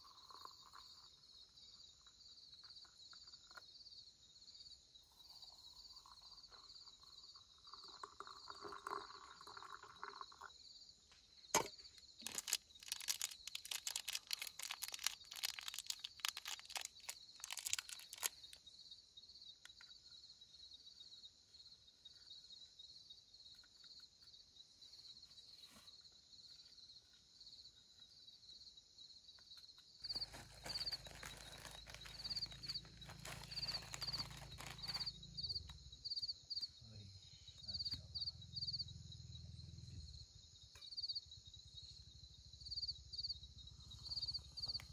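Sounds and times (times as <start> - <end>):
crickets chirping: 0.0 - 44.9
crinkling crunching clicks: 11.6 - 18.6, 30.1 - 35.1.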